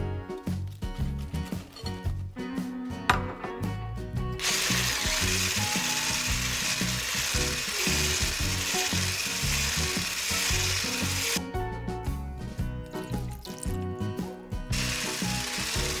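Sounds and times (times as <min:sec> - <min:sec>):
background music: 0:00.0 - 0:16.0
hand blender whirring: 0:04.4 - 0:11.4, 0:14.7 - 0:16.0.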